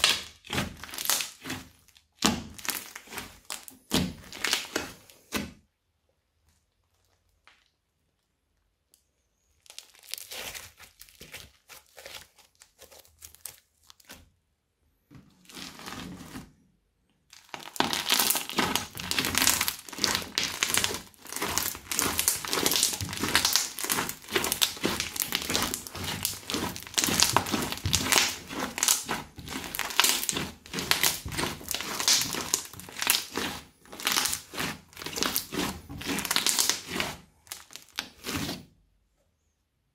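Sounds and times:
crunchy slime being squeezed: 0.0s - 5.4s, 9.4s - 14.2s, 17.3s - 38.6s.

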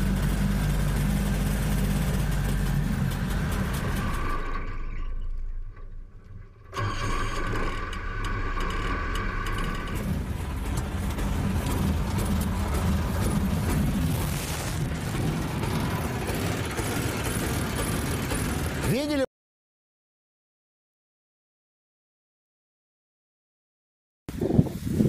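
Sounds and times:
car engine idling: 0.0s - 19.2s.

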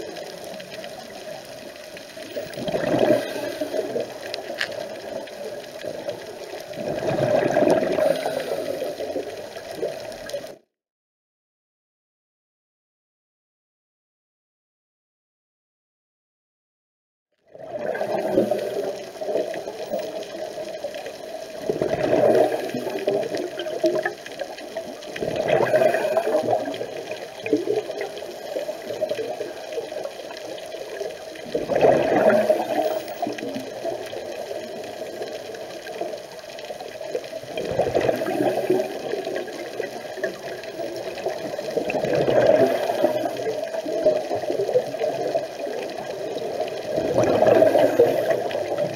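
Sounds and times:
exhaled bubbles bursting: 0.0s - 10.6s, 17.5s - 48.9s
underwater regulator breathing: 7.6s - 9.7s.

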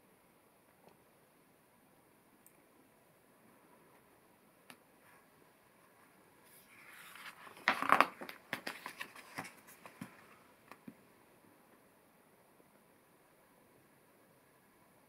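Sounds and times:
page turning swish: 6.5s - 10.2s
light paper crackles: 6.5s - 10.4s.

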